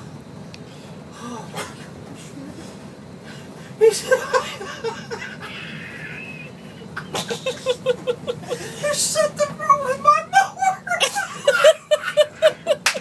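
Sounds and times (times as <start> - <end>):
man laughing hard: 3.8 - 9.1, 10.3 - 13.0.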